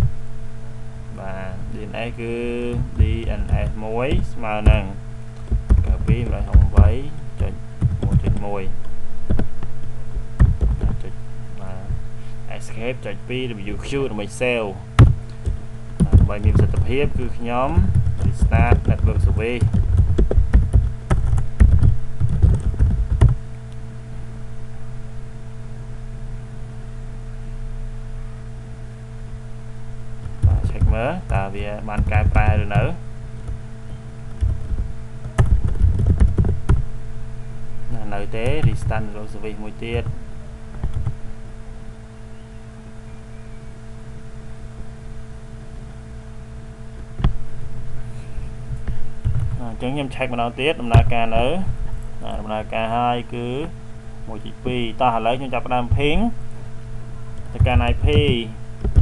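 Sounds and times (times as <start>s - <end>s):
low electrical hum: 0.0s - 59.0s
computer keyboard typing: 5.4s - 8.5s, 15.4s - 23.4s, 30.4s - 32.6s, 34.4s - 36.8s.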